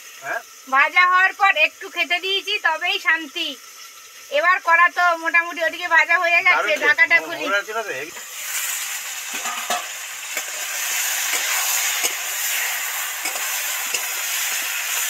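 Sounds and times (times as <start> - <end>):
vegetables sizzling in oil: 0.0 - 15.0
spatula scraping a pan: 8.4 - 15.0.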